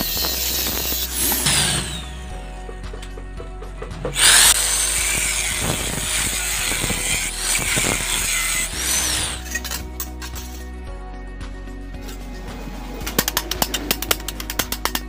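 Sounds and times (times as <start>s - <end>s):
angle grinder cutting steel: 0.0s - 2.6s, 4.0s - 10.5s.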